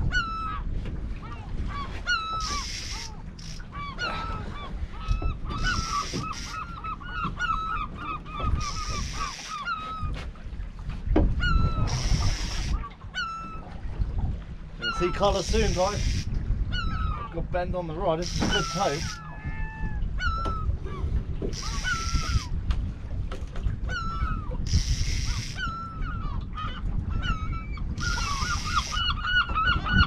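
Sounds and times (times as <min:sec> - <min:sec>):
gulls calling: 0:00.0 - 0:10.2, 0:11.3 - 0:13.8, 0:14.8 - 0:22.6, 0:23.9 - 0:30.0
bursts of hiss: 0:06.3 - 0:06.6.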